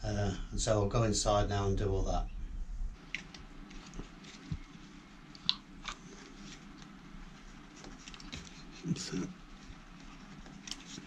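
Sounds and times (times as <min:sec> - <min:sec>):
wires rustling: 0:02.9 - 0:11.0.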